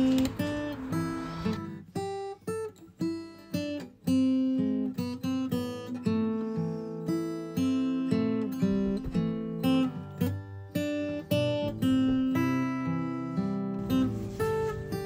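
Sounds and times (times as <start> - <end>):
acoustic guitar chords: 0.0 - 15.0.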